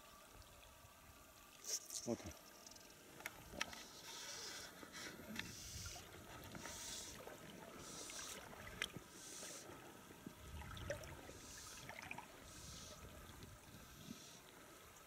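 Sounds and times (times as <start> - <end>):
river water moving past a boat: 3.2 - 13.9.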